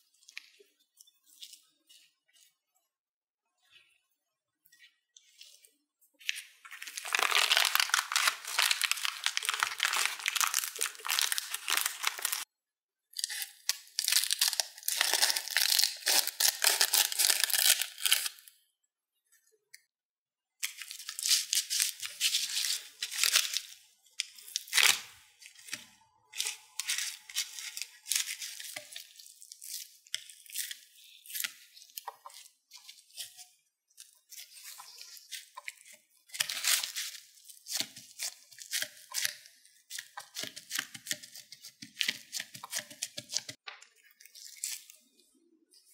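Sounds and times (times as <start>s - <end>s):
crinkling and tearing: 6.2s - 12.5s, 13.2s - 18.5s, 20.6s - 45.1s.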